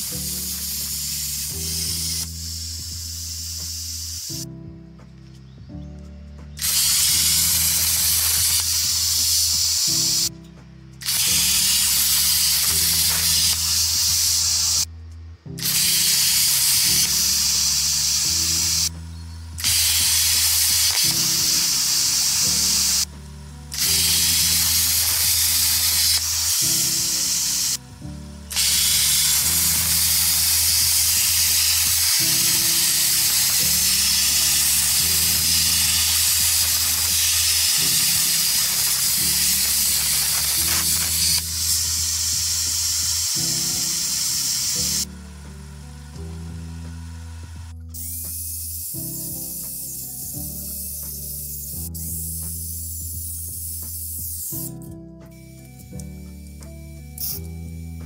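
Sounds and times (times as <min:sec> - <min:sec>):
plasma cutter hissing: 0:00.0 - 0:04.4, 0:06.6 - 0:10.3, 0:11.0 - 0:14.9, 0:15.6 - 0:19.0, 0:19.6 - 0:23.1, 0:23.7 - 0:27.8, 0:28.4 - 0:45.2, 0:47.9 - 0:54.7
background music with bass: 0:00.0 - 0:58.0.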